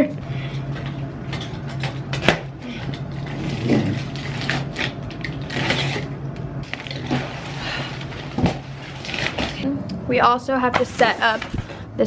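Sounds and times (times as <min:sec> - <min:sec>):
steady low hum: 0:00.0 - 0:12.0
cardboard rustling and scraping: 0:06.7 - 0:09.6, 0:10.7 - 0:11.8.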